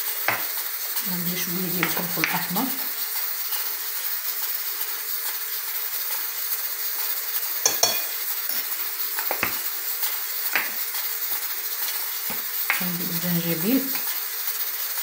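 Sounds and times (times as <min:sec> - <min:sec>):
food sizzling: 0:00.0 - 0:15.0
spoon clinking on glass jars: 0:07.6 - 0:08.6.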